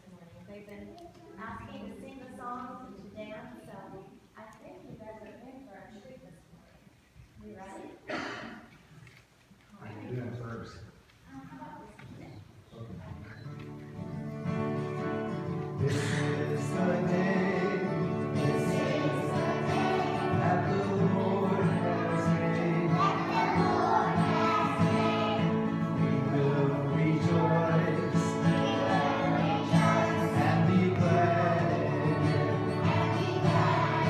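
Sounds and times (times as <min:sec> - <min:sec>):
children singing: 0:15.8 - 0:34.0.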